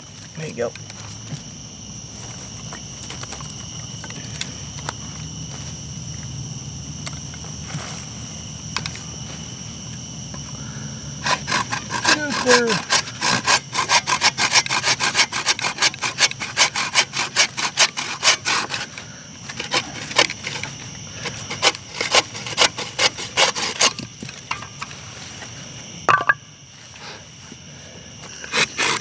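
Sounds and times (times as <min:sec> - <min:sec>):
blade cutting wood strokes: 0:11.2 - 0:25.0, 0:28.2 - 0:29.0.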